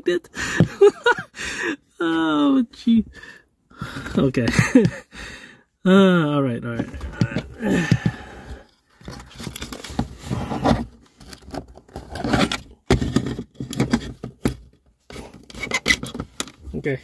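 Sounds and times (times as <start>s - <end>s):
rustling and scraping: 6.7s - 17.0s.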